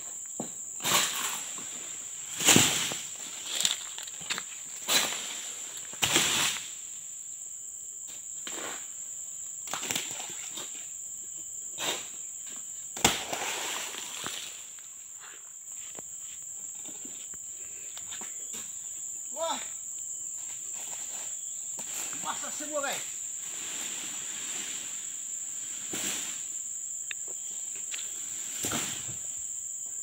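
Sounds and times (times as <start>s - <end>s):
insects droning: 0.0s - 30.0s
footsteps through undergrowth: 2.6s - 6.0s.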